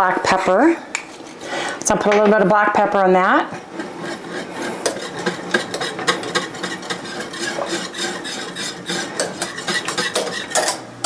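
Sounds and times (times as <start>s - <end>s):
spoon stirring thick soup: 3.6s - 10.8s.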